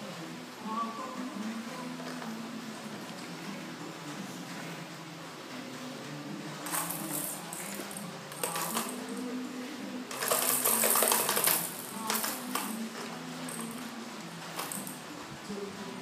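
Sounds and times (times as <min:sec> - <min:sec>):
plastic baby walker toy jingling and clattering: 0:06.7 - 0:09.1, 0:10.1 - 0:13.7.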